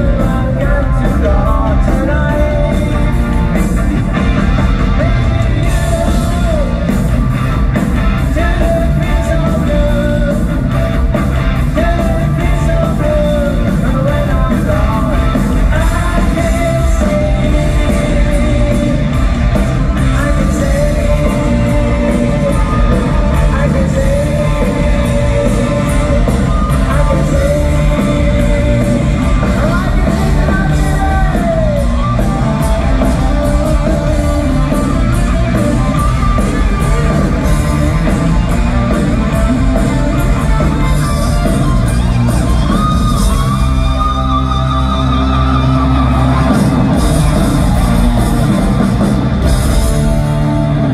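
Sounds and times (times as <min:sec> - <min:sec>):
person singing: 0:00.0 - 0:07.0, 0:11.7 - 0:41.9
hard rock band playing live: 0:00.0 - 0:50.9.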